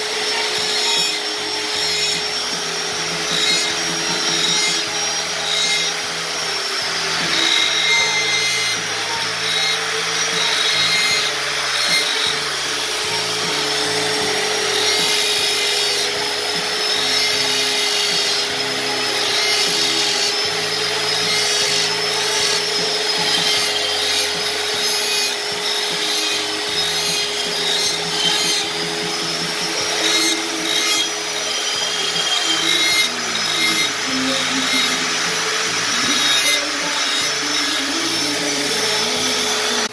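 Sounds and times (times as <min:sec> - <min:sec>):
electric grinder whining: 0:00.0 - 0:39.9.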